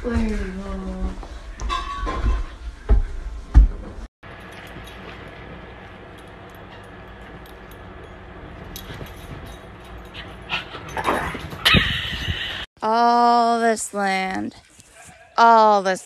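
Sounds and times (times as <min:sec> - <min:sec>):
low steady hum: 0:00.0 - 0:11.6.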